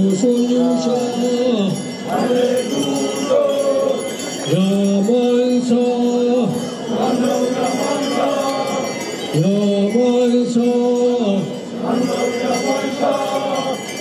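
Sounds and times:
group of voices chanting: 0:00.8 - 0:04.6, 0:06.5 - 0:09.5, 0:11.4 - 0:14.0.

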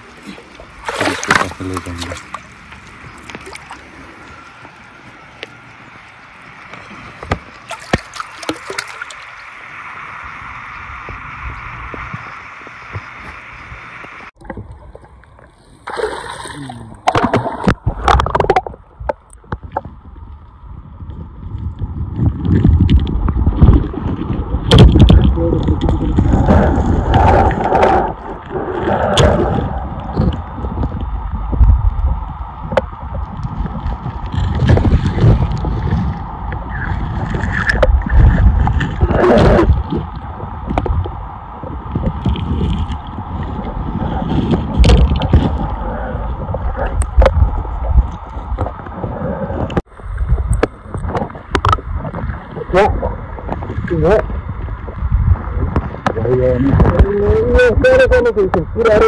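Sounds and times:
water splashing: 0:00.0 - 0:19.9
water sloshing and gurgling: 0:00.0 - 0:58.9
river water rushing: 0:05.6 - 0:10.2
low rumble: 0:16.5 - 0:58.9.

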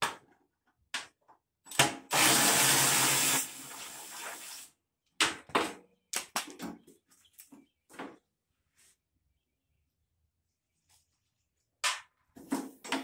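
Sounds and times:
cordless drill whirring: 0:02.1 - 0:03.7.

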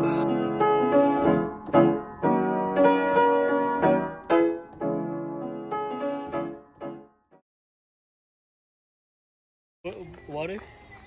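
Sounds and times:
piano music: 0:00.0 - 0:07.4.

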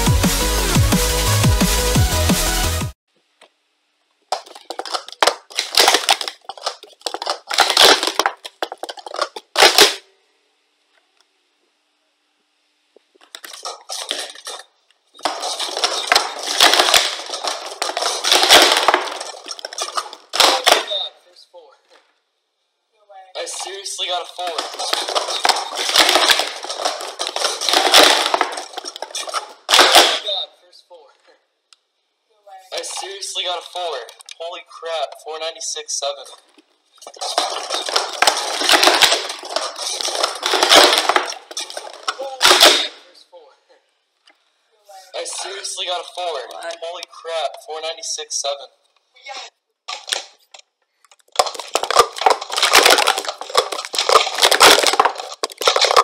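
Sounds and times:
plastic cups clattering: 0:04.3 - 0:10.0, 0:13.2 - 0:21.0, 0:23.4 - 0:30.2, 0:36.4 - 0:43.0, 0:49.9 - 0:50.4, 0:51.1 - 0:56.0.

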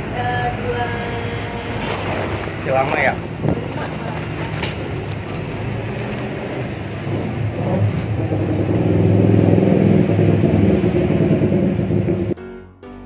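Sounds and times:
vehicle engine running: 0:00.0 - 0:12.4.

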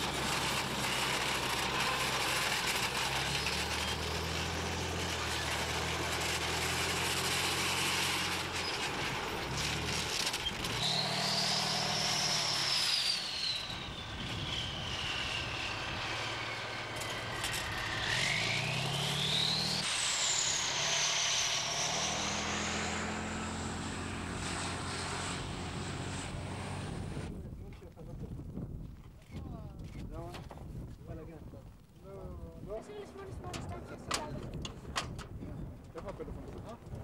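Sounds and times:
heavy vehicle engine running: 0:00.0 - 0:27.3.

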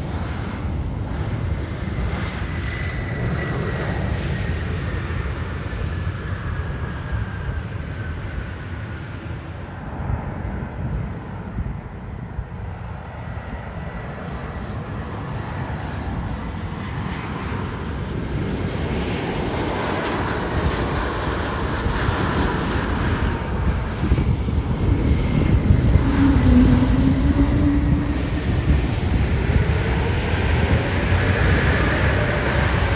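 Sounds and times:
jet airliner engines: 0:00.0 - 0:32.9.

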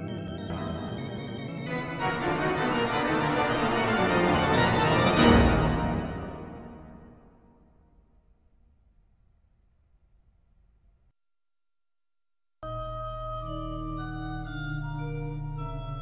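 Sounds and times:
organ chord: 0:00.0 - 0:07.4.

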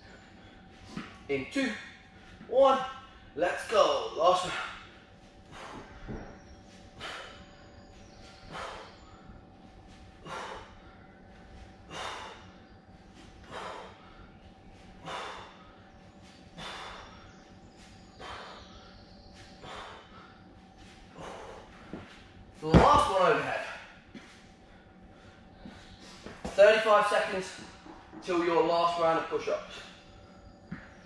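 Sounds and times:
man breathing hard: 0:04.4 - 0:22.3, 0:23.6 - 0:26.5.

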